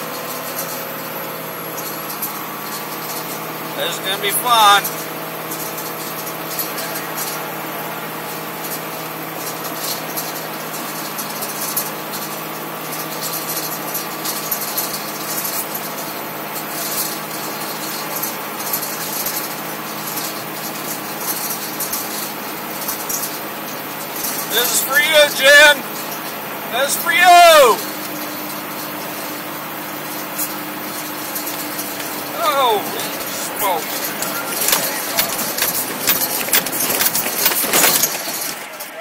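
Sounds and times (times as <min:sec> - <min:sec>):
pickup truck engine running: 0:00.0 - 0:39.0
cab rattles and knocks: 0:30.0 - 0:39.0.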